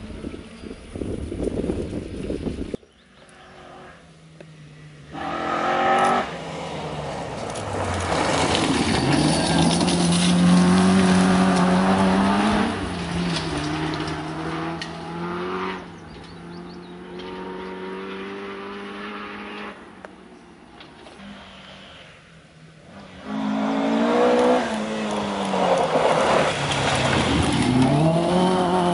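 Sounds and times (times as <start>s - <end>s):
tyres on gravel: 2.9s - 18.9s, 23.9s - 28.9s
rally car engine revving: 4.7s - 19.8s, 22.8s - 28.9s.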